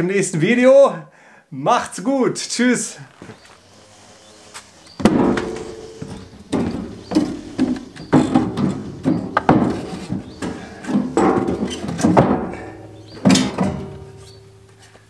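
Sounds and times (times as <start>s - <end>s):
wooden boards knocking in trailer: 5.0s - 14.2s.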